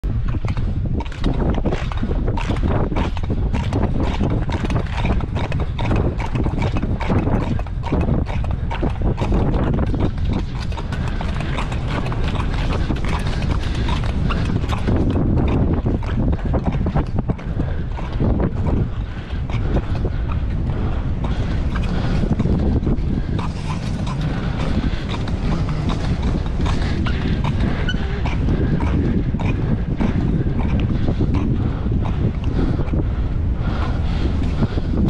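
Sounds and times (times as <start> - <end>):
wind on microphone: 0.0 - 35.0
skate blades scraping ice: 21.3 - 29.6.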